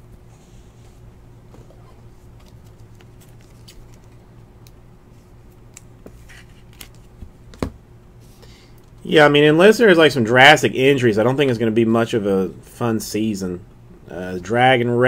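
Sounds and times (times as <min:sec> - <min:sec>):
steady low hum: 0:00.0 - 0:15.0
trading cards clicking and rustling: 0:01.6 - 0:04.8, 0:05.5 - 0:07.7.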